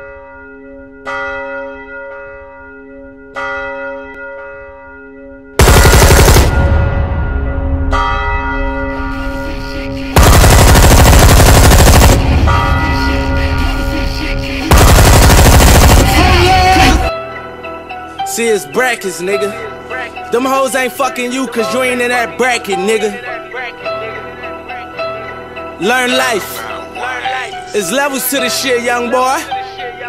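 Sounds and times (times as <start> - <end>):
deep bell tone ringing: 0.0 - 10.2
harsh rattling bursts: 5.6 - 6.6, 10.2 - 12.6, 14.7 - 17.1.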